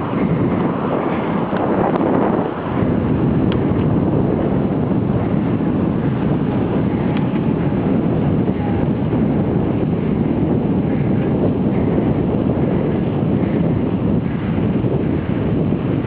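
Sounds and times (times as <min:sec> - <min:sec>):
tyre and road rumble: 0:00.0 - 0:16.0
wind buffeting microphone: 0:00.0 - 0:16.0.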